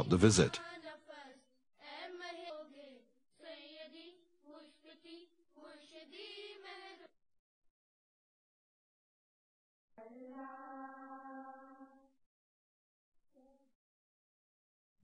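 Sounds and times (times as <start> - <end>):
faint high voice singing: 0.0 - 7.1, 10.0 - 12.1.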